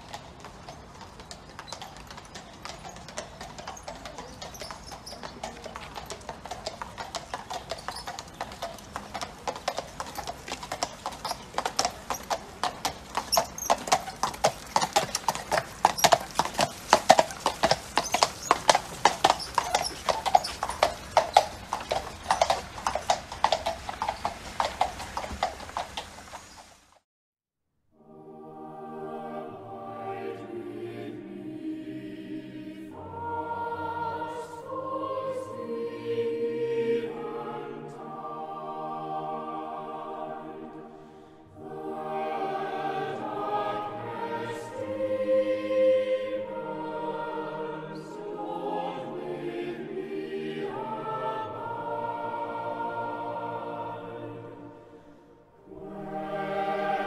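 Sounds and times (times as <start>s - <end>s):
horse hooves clip-clopping on tarmac: 0.0s - 27.0s.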